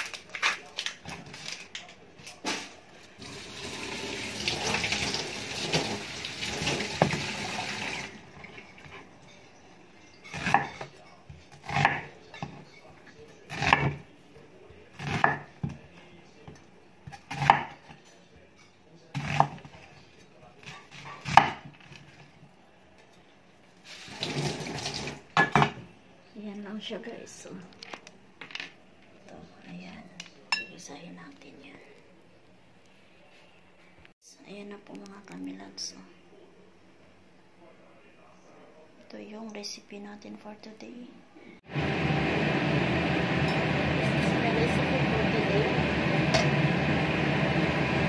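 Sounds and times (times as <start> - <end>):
knife chopping onion on board: 11.6 - 12.1, 13.5 - 14.0, 15.0 - 15.8, 17.1 - 17.8, 20.6 - 21.7.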